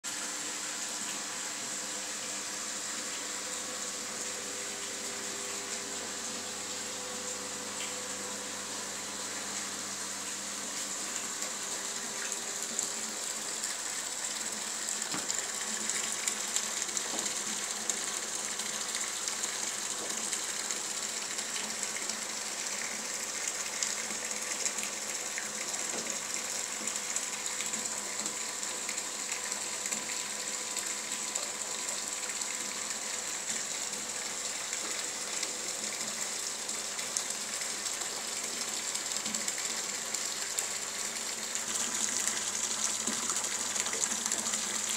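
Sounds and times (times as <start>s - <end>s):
liquid gushing from hose: 8.6s - 44.9s.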